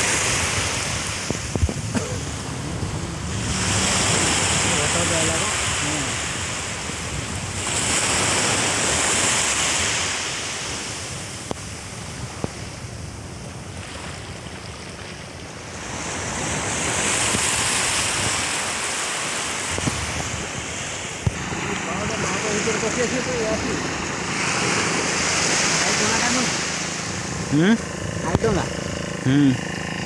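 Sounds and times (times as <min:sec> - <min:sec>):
sea waves breaking on beach: 0:00.0 - 0:30.0.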